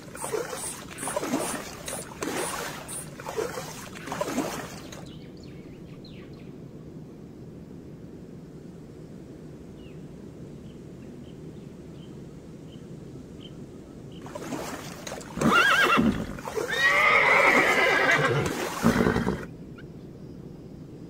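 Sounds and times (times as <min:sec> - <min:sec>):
zebras braying: 0:00.0 - 0:05.0
water noise: 0:00.0 - 0:05.2, 0:14.2 - 0:19.5.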